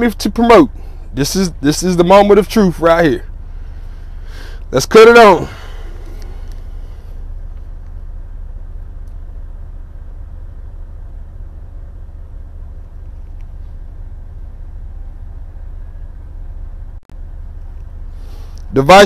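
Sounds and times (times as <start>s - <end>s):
diesel engine idling: 0.0s - 19.0s
faint clicks: 12.8s - 13.6s.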